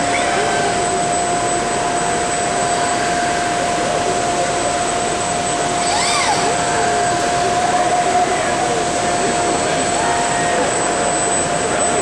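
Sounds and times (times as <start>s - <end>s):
busy trade show hall noise: 0.0s - 12.0s
constant hum: 0.0s - 12.0s.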